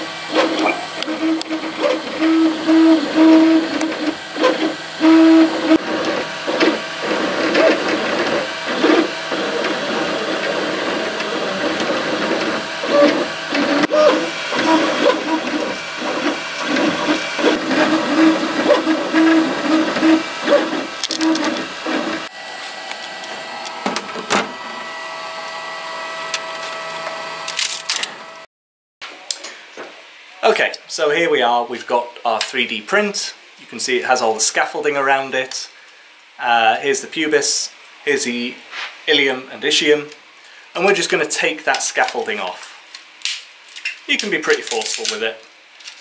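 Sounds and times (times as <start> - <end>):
steady hum: 0.0 - 27.6
printer stepper motors whining: 0.0 - 28.4.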